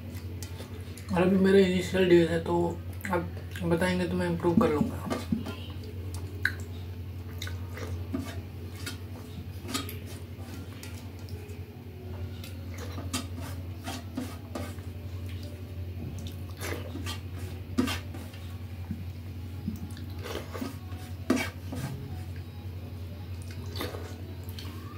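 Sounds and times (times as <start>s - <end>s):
steady low hum: 0.0s - 24.9s
mouth smacking while chewing: 6.1s - 6.7s, 7.3s - 8.0s.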